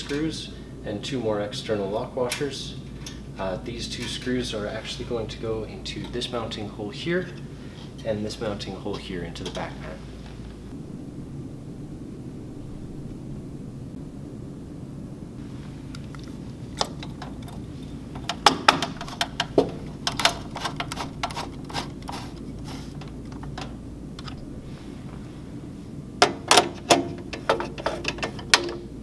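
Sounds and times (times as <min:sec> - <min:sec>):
nut driver tightening fasteners: 0:18.2 - 0:24.4
screwdriver metallic clicks and scrapes: 0:18.2 - 0:24.4.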